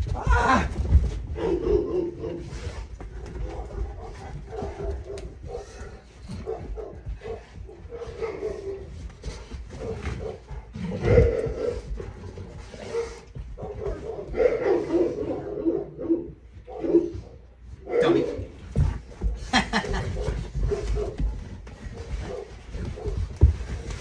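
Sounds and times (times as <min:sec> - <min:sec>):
dogs making low vocal sounds: 0:00.0 - 0:24.0
dogs sniffing: 0:01.4 - 0:15.5
soft thumps of dog paws: 0:18.4 - 0:24.0.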